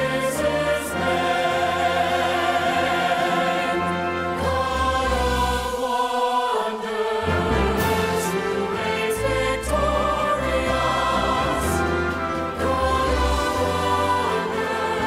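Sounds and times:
choir singing worship song: 0.0 - 15.0
instrumental backing music: 7.2 - 15.0.

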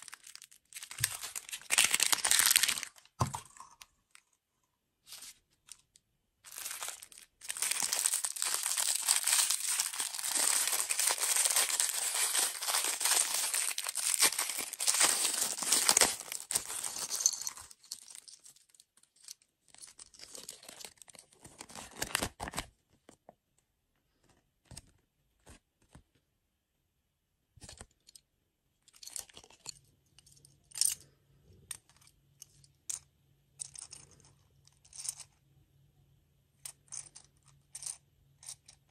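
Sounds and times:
plastic wrapper crinkling and tearing: 0.0 - 3.2, 6.5 - 18.8, 20.2 - 22.7.

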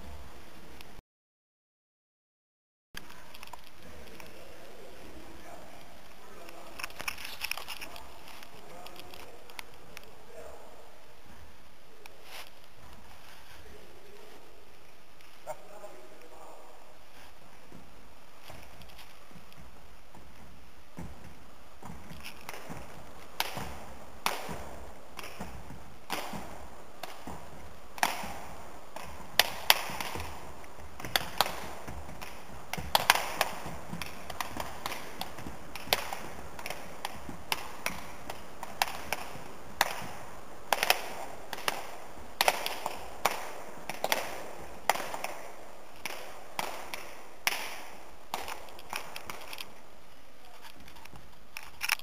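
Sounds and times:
hands slapping feet with echo: 15.2 - 49.8.

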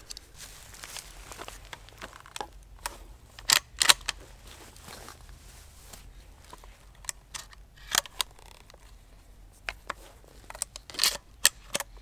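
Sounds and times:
shotgun shells clicking into magazine: 3.4 - 4.2, 10.5 - 11.9.

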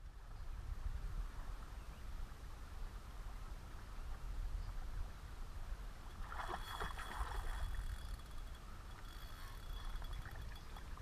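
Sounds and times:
wind rumble on microphone: 0.0 - 11.0
fishing reel whine: 6.1 - 11.0.

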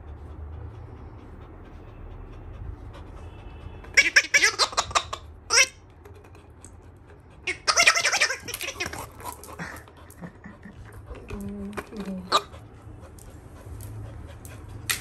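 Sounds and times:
dog toy noise-maker: 3.8 - 6.4, 7.1 - 10.2.

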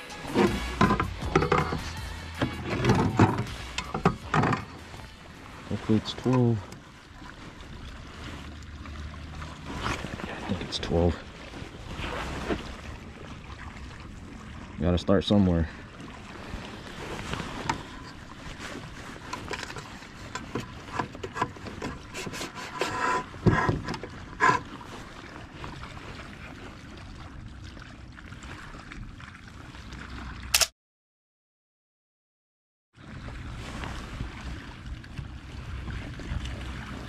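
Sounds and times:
knocks and scrapes on plastic hull: 0.3 - 4.8, 19.2 - 24.8.

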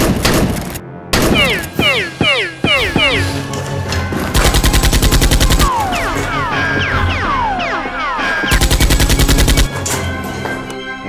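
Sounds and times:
background music: 0.0 - 11.0
automatic gunfire sound effect: 8.5 - 9.7.

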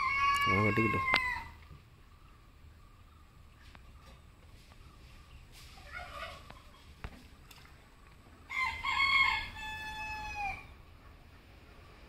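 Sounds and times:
rooster crowing: 0.0 - 1.6, 8.5 - 10.7.

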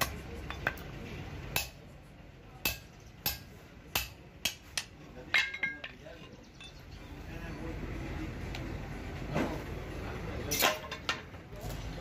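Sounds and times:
hammer striking chisel on metal: 0.0 - 0.8, 1.5 - 1.8, 2.6 - 6.0.

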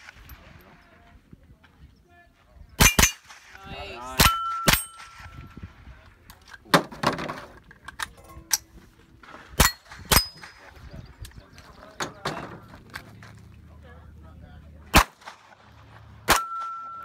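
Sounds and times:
rifle shots: 2.8 - 3.6, 4.2 - 5.6, 14.9 - 17.0
struck steel ringing: 4.2 - 5.5, 16.3 - 17.0.

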